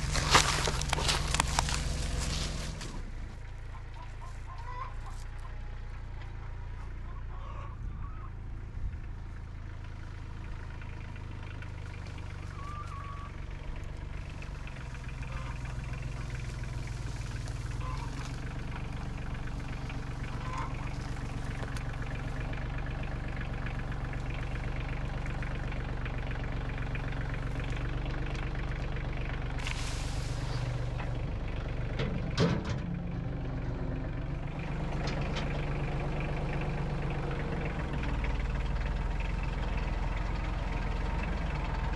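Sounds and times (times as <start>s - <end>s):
tractor engine running: 0.0s - 41.9s
short hiss: 29.6s - 30.7s.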